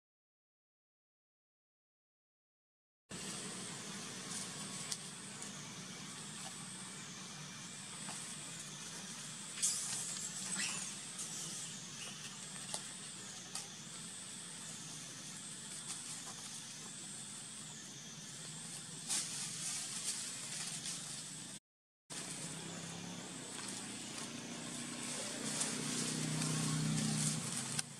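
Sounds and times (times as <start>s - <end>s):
rustle: 3.2s - 7.4s, 18.6s - 21.4s, 22.1s - 27.9s
high-pitched insect drone: 3.2s - 27.9s
falling squeak: 9.6s - 12.3s.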